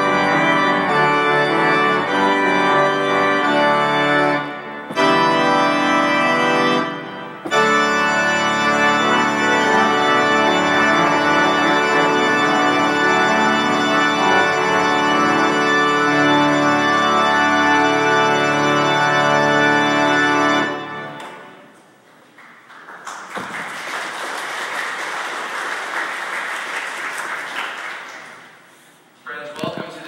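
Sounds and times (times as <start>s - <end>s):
church organ chord: 0.0s - 21.7s
congregation applauding: 22.0s - 28.8s.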